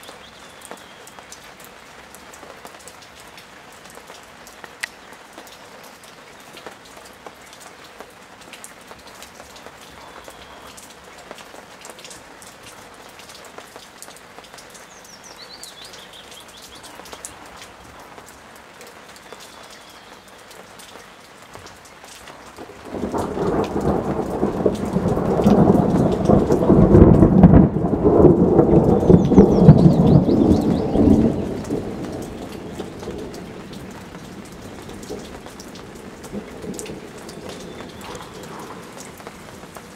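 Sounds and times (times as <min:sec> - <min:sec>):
steady rain falling: 0:00.0 - 0:39.9
thunder rumbling: 0:22.6 - 0:39.9.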